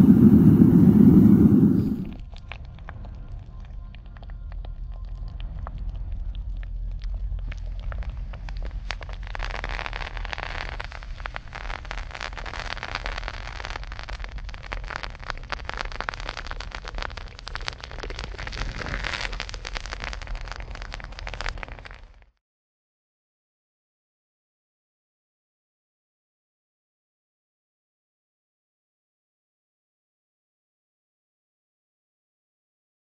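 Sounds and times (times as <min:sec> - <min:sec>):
steady low rumble: 0:00.0 - 0:22.3
molten salt crackling and popping: 0:00.0 - 0:22.4.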